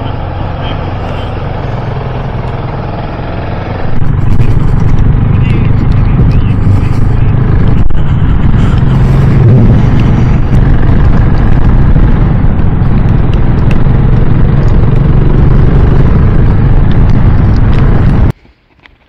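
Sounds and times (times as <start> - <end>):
motorcycle engine running: 0.0 - 18.4
wind noise on microphone: 3.8 - 18.4.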